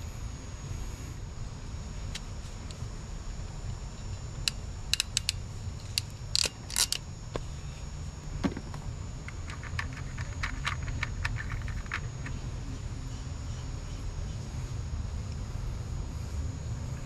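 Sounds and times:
steady low rumble: 0.0s - 17.0s
wire cutters snipping: 4.5s - 7.0s
connectors rummaged in plastic box: 9.4s - 12.3s.

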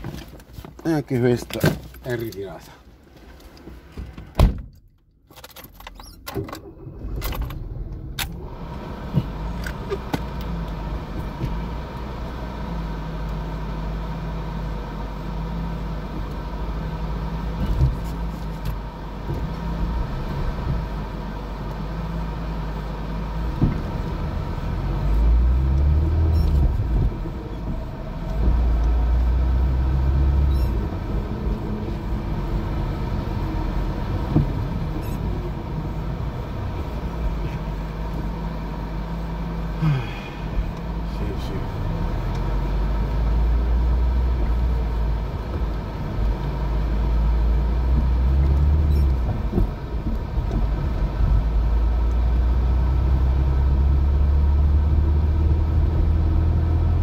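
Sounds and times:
car engine starting and running: 0.0s - 57.0s.

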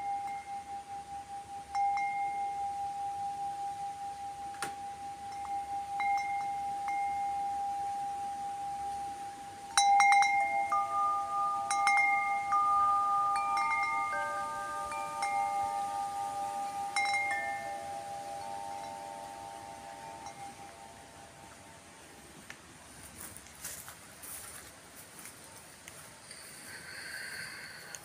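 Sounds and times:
tubular wind chime ringing: 0.0s - 21.8s.

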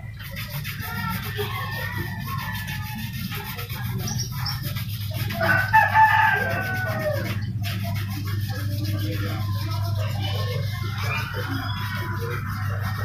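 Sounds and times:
toothbrush scrubbing circuit board: 0.0s - 13.0s
rooster crowing: 5.4s - 7.4s.

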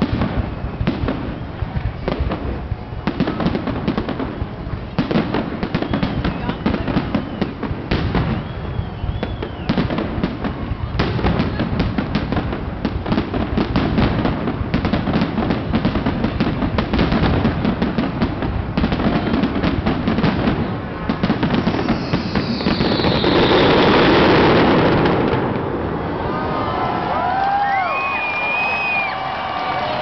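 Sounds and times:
falling hiss of fireworks: 0.0s - 30.0s
fireworks crackling and popping: 0.0s - 30.0s.

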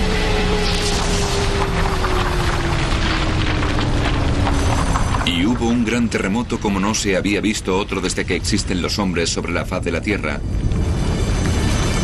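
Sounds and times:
loud low earthquake rumble: 0.0s - 9.2s.

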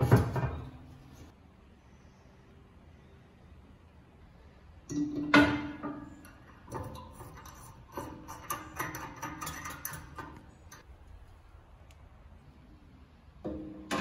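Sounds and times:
small metallic clicks and rattles: 5.8s - 10.9s.

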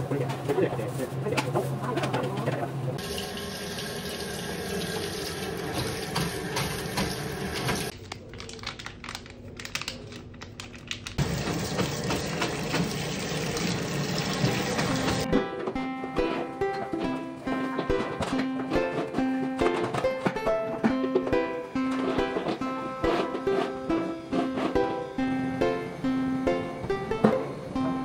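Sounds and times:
tap water running into a sink: 3.0s - 7.9s, 11.2s - 15.2s.

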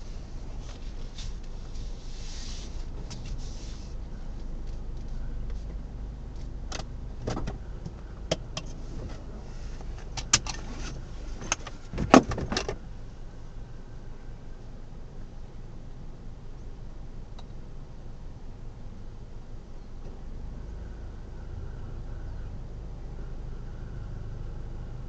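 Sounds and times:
low rumble of car cabin: 0.0s - 25.0s
sharp clicks and knocks: 6.4s - 9.2s.

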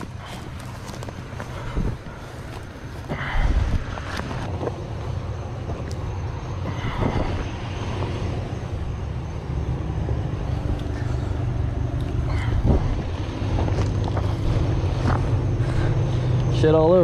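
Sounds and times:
vehicle engine humming: 0.0s - 17.0s.

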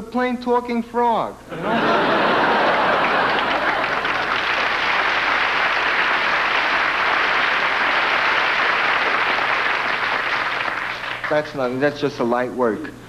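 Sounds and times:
audience applauding: 1.6s - 11.6s.

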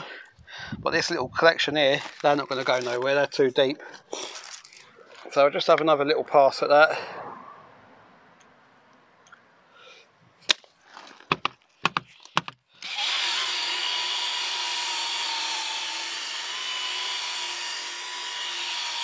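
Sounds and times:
cordless drill whining: 12.8s - 19.0s.

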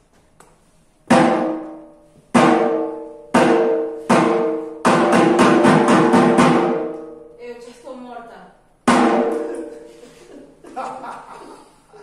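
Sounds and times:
drum strikes ringing: 1.1s - 7.4s, 8.8s - 9.9s.

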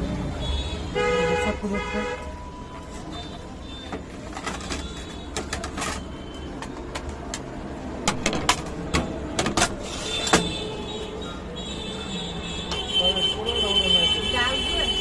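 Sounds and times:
low traffic rumble: 0.0s - 15.0s
sharp clicks and knocks: 3.9s - 10.6s.

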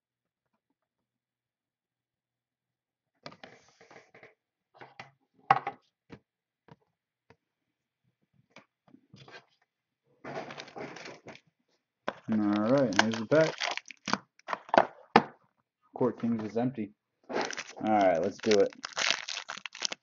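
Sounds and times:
trading cards being handled: 12.2s - 14.2s, 17.4s - 20.0s.

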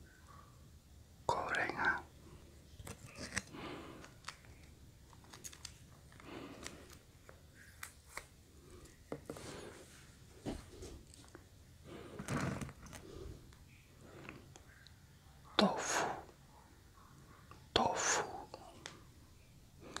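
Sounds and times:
plastic sachet crinkling: 2.8s - 8.3s.

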